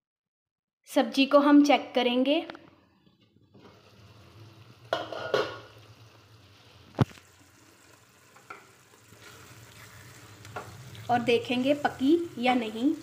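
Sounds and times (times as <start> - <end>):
curry sizzling in a pan: 3.1 - 13.0
glass lid rattle: 4.9 - 5.6.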